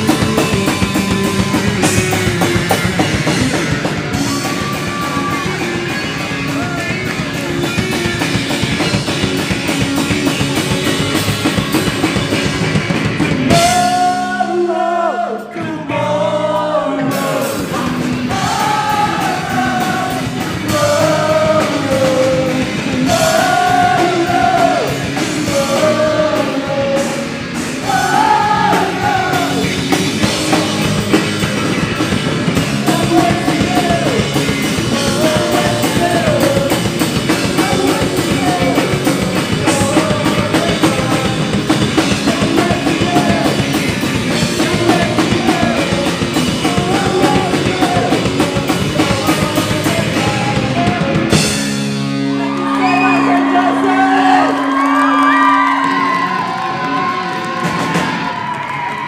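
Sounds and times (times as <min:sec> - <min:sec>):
person singing lead vocal: 0:00.0 - 0:05.8, 0:13.5 - 0:31.4, 0:32.0 - 0:51.7, 0:52.3 - 0:57.3
bass guitar: 0:00.0 - 0:59.0
drum kit: 0:00.0 - 0:59.0
electric guitar: 0:00.0 - 0:59.0.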